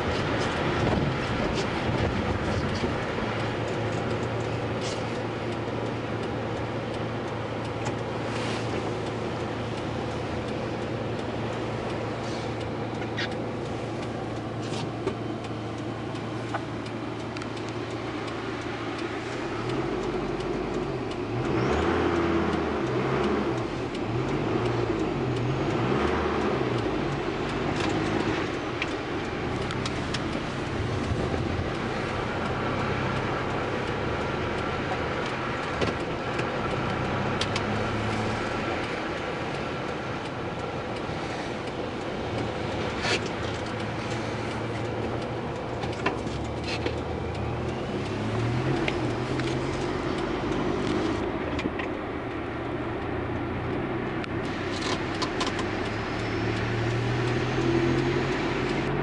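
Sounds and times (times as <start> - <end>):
car engine: 0.0 - 59.0
road noise: 0.0 - 59.0.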